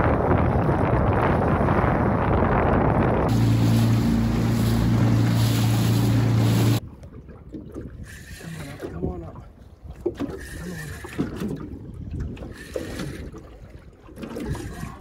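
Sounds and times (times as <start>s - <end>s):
wind buffeting microphone: 0.0s - 8.2s, 11.1s - 15.0s
water noise: 0.0s - 15.0s
outboard motor humming: 2.2s - 6.8s.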